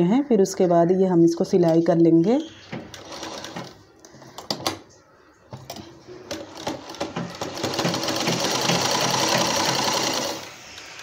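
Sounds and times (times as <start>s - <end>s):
sewing machine stitching: 2.8s - 3.8s, 5.7s - 10.6s.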